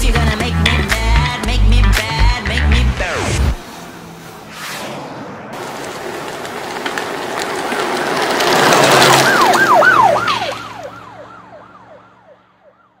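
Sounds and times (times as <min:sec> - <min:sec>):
noisy swell: 0:02.9 - 0:06.8
siren-like falling wail: 0:03.0 - 0:06.5, 0:08.9 - 0:13.0.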